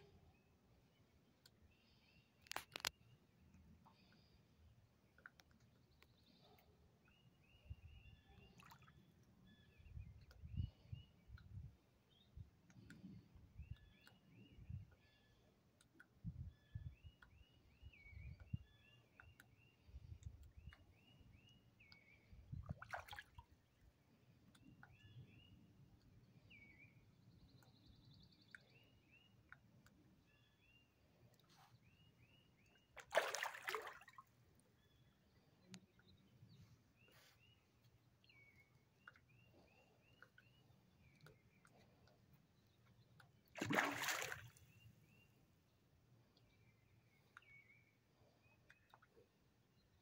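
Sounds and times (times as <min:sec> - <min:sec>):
small water splash: 0:22.6 - 0:23.6, 0:33.0 - 0:34.4, 0:43.5 - 0:44.8.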